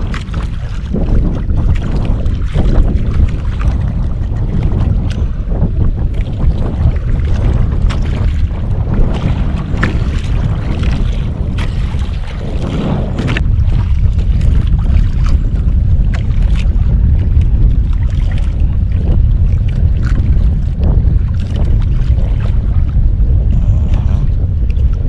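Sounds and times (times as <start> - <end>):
waves slapping boat hull: 0.0 - 25.0
wind rumbling on microphone: 0.0 - 25.0.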